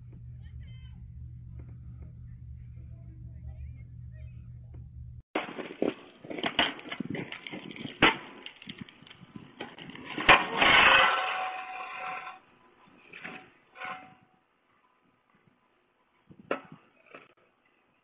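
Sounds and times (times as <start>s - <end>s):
person falling onto ice: 5.4s - 11.7s
shovel scraping ice: 10.1s - 12.4s.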